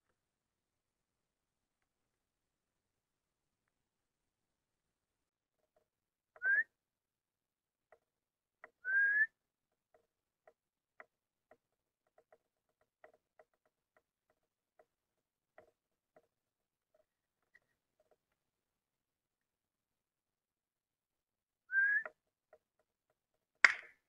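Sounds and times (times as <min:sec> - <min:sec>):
person whistling: 0:06.4 - 0:06.7, 0:08.8 - 0:09.3, 0:21.7 - 0:22.1.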